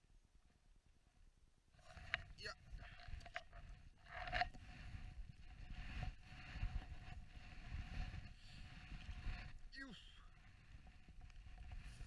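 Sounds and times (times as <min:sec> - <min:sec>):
wind buffeting microphone: 0:02.4 - 0:09.7.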